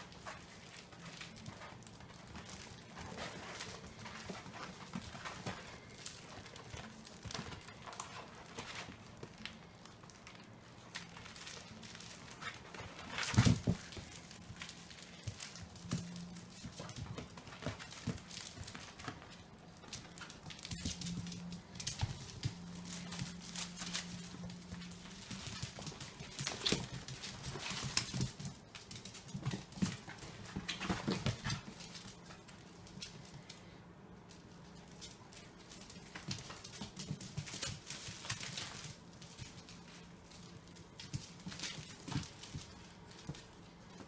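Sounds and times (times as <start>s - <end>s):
claws clicking on tile floor: 0.0s - 44.0s
puppies scuffling with toys: 0.0s - 44.0s.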